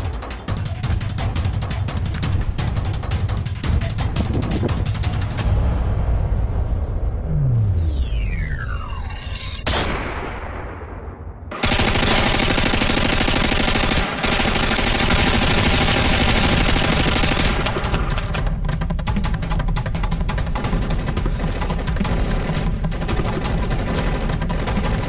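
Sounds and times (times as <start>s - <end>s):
rapid gunfire: 11.5s - 25.0s.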